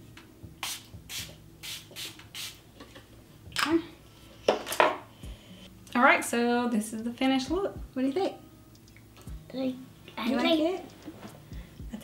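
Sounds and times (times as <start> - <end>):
spray bottle hisses: 0.6 - 2.6.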